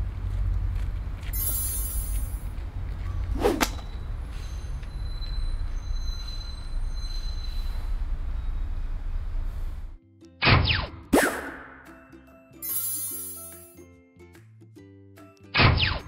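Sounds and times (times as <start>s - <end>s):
quick whoosh: 3.3s - 3.8s.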